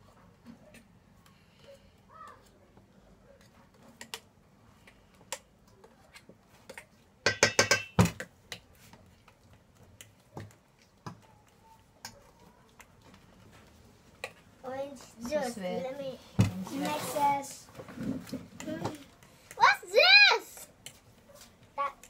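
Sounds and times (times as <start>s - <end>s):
utensil clinking in metal bowl: 7.3s - 8.0s.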